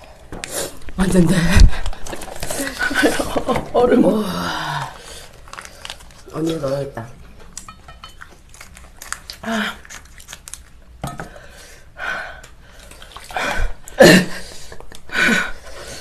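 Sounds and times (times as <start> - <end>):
chopsticks clinking on steel bowls: 7.6 - 8.3.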